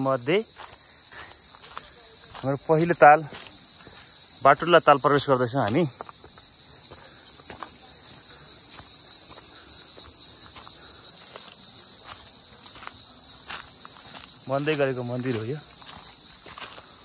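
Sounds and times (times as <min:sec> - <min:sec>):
faint footsteps on a trail: 0:00.0 - 0:17.0
high-pitched insect chorus: 0:00.0 - 0:17.0.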